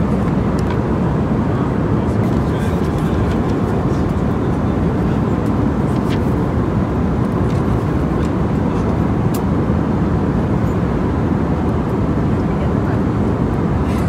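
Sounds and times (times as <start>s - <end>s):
airliner cabin rumble: 0.0s - 14.0s
magazine pages turning: 5.9s - 6.4s.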